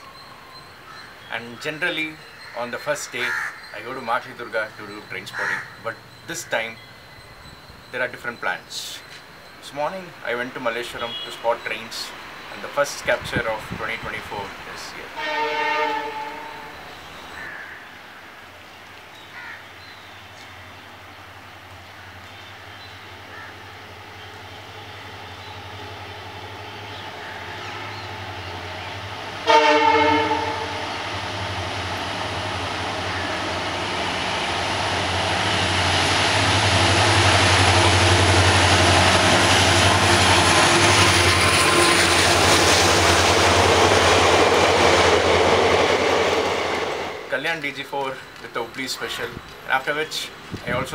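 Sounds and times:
train rumbling on rails: 0:03.7 - 0:19.0, 0:19.8 - 0:50.9
train horn: 0:15.2 - 0:16.9, 0:29.4 - 0:31.2
diesel locomotive engine throb: 0:23.7 - 0:47.3.

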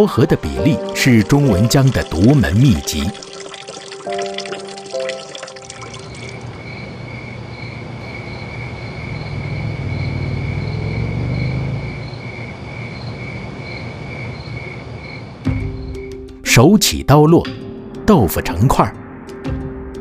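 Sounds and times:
crickets chirping: 0:00.7 - 0:16.3.

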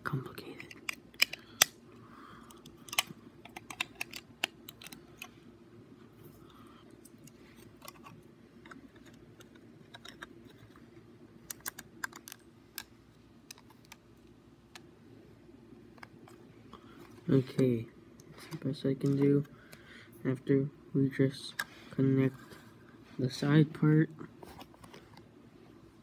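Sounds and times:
faint steady hum: 0:00.0 - 0:26.0
plastic bricks clicking and clattering: 0:02.9 - 0:05.3, 0:07.8 - 0:10.7.

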